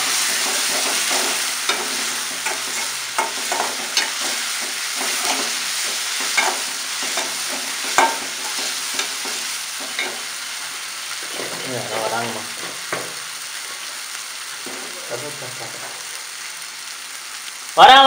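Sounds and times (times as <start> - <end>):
onions sizzling in oil: 0.0 - 18.0
spoon scraping a pan: 0.1 - 13.2.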